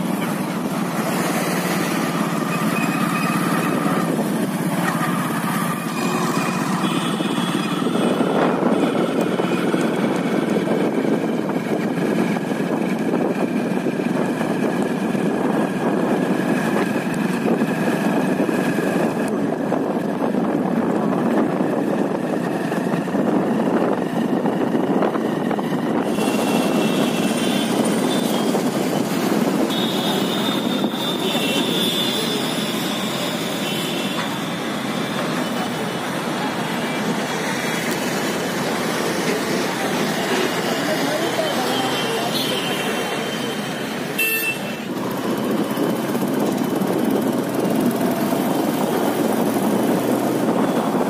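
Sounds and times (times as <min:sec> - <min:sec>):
motorcycle engine and road noise: 0:00.0 - 0:51.0.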